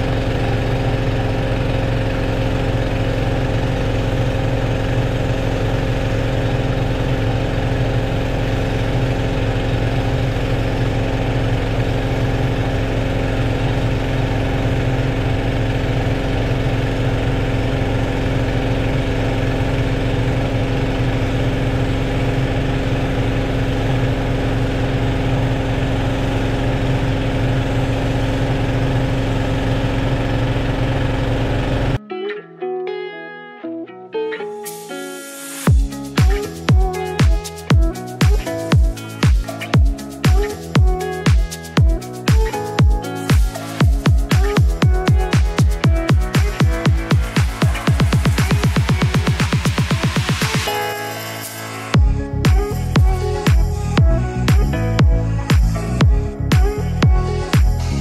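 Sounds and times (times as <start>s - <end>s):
pressure washer engine running: 0.0s - 32.0s, 35.4s - 58.0s
wand spraying: 34.7s - 53.9s.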